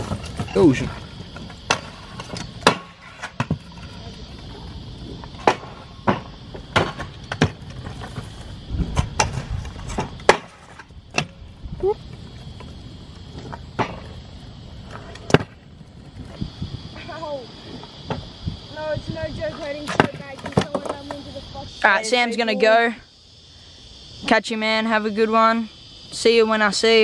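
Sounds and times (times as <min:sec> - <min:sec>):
scooters rolling over concrete: 0:00.0 - 0:21.8.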